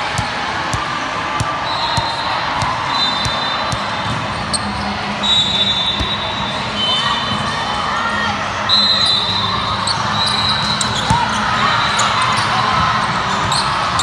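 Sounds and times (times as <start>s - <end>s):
volleyballs hit and bouncing: 0.0s - 4.8s
murmur of crowd chatter: 0.0s - 14.0s.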